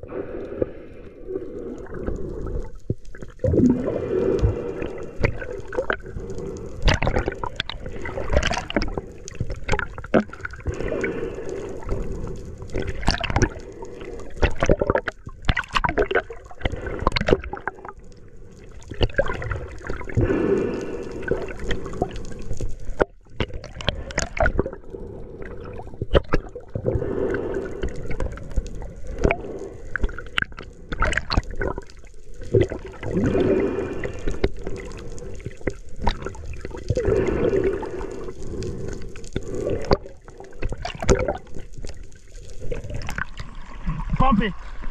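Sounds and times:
water gurgling and sloshing: 0:00.0 - 0:44.9
irregular clicks and pops: 0:01.7 - 0:20.3, 0:20.9 - 0:24.9, 0:25.7 - 0:27.0, 0:27.7 - 0:33.4, 0:34.1 - 0:43.5.

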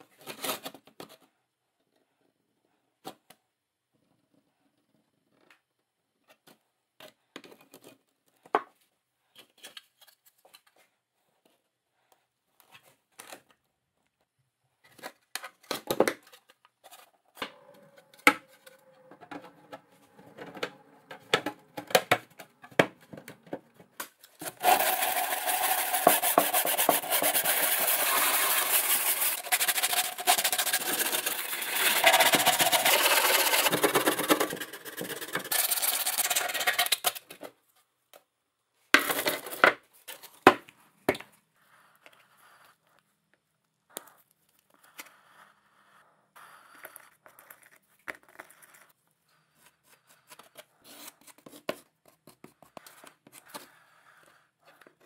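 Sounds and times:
hand sanding scraping: 0:24.4 - 0:36.9.

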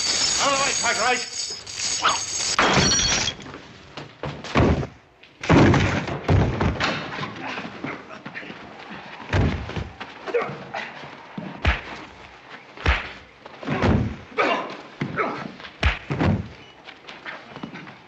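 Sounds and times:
bodies hitting dirt: 0:04.2 - 0:07.3, 0:09.3 - 0:10.5, 0:11.4 - 0:14.3, 0:15.0 - 0:17.8
punches thudding: 0:12.8 - 0:14.2, 0:15.0 - 0:16.6.

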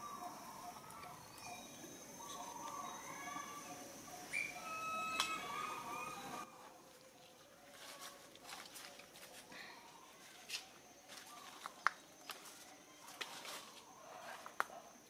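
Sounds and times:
thin steady high tone: 0:00.0 - 0:06.7.

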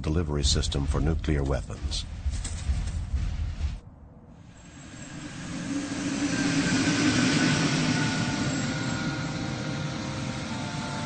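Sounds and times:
faint steady tones: 0:00.0 - 0:11.0
aircraft engines roaring: 0:04.4 - 0:11.0.

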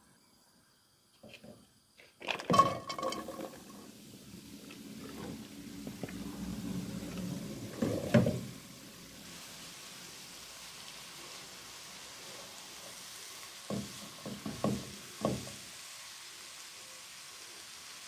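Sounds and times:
vegetables sizzling in a pan: 0:02.5 - 0:18.0
wooden spatula knocking: 0:13.7 - 0:15.5.

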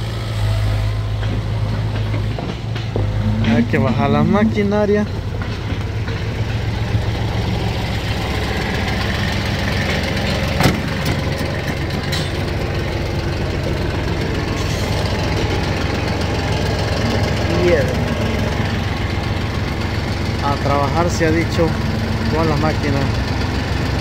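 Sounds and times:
tractor diesel engine idling: 0:00.0 - 0:24.0
sharp clunk: 0:10.6 - 0:12.4.

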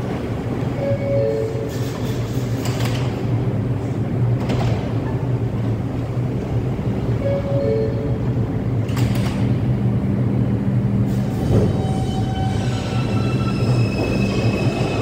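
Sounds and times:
low hum of stopped train: 0:00.0 - 0:15.0.

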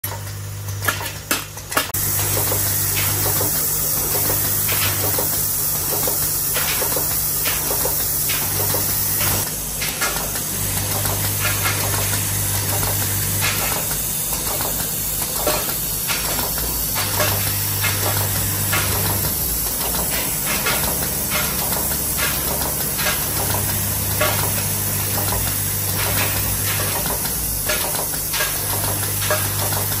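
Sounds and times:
machine clicks and knocks: 0:00.0 - 0:30.0
low machine hum: 0:10.5 - 0:30.0.

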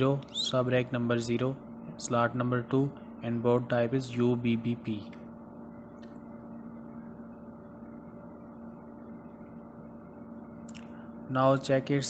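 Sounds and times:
low background hum with tones: 0:00.0 - 0:12.0.

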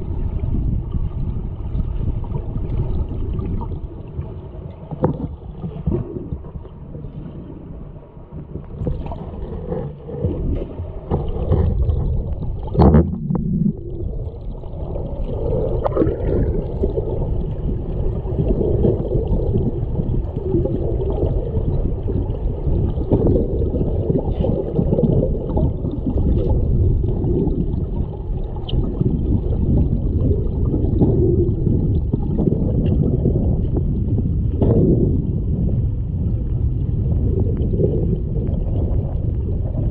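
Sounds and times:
underwater rush and gurgle: 0:00.0 - 0:39.9.

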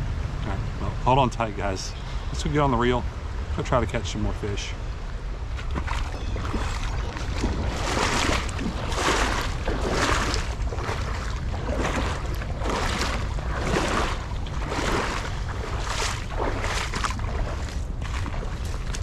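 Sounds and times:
low rumble: 0:00.0 - 0:19.0
footsteps sloshing through water: 0:04.9 - 0:19.0.

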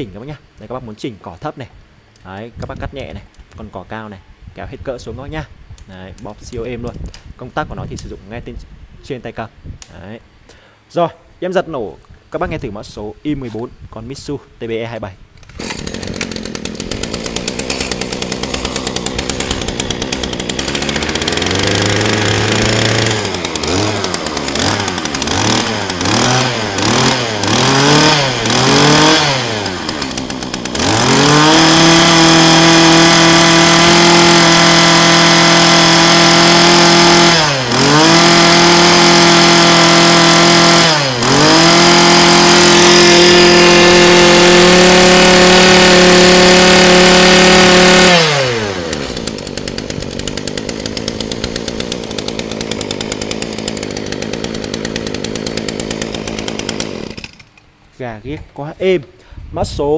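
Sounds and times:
brush cutter engine revving: 0:15.4 - 0:57.6.

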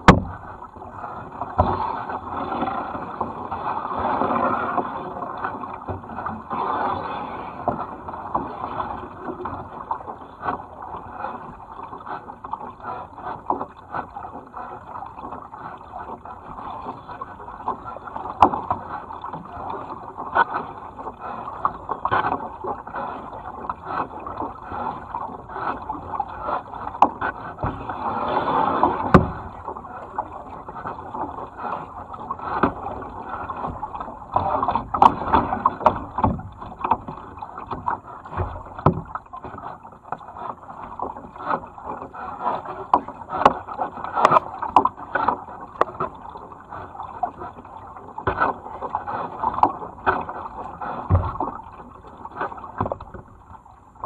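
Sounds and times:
paddles splashing in water: 0:00.0 - 0:54.0
water rushing along hull: 0:00.0 - 0:54.0.

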